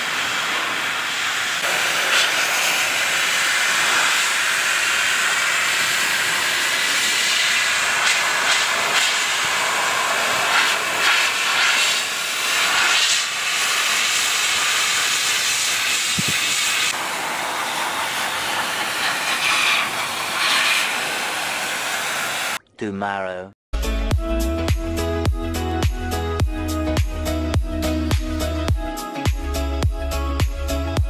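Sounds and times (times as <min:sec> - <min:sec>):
blow dryer rushing air: 0:00.0 - 0:22.6.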